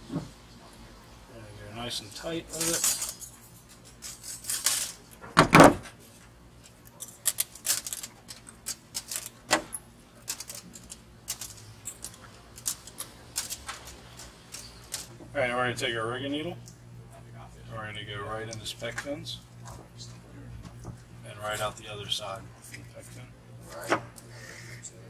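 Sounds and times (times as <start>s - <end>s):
wire and pliers clicking and scraping: 2.5s - 5.2s, 6.6s - 15.2s.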